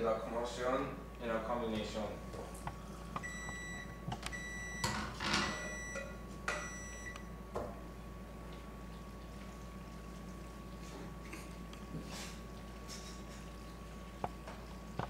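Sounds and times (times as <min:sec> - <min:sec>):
appliance timer beeping: 0:03.2 - 0:07.4.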